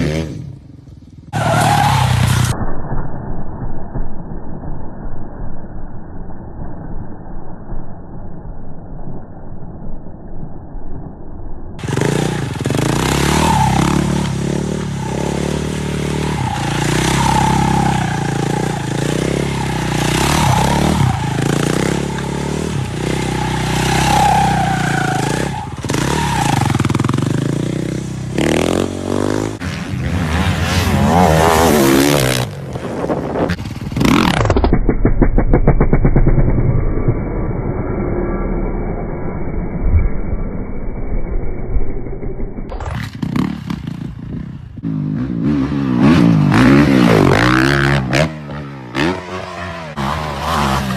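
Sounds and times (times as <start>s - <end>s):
motorcycle engines revving: 0.0s - 2.6s, 11.8s - 36.6s, 42.7s - 50.9s.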